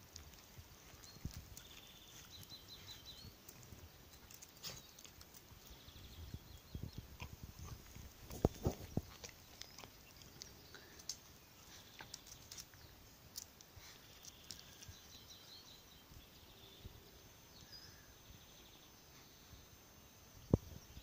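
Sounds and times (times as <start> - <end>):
faint bird chirps: 0.0 - 21.0
faint clicks: 8.3 - 11.3.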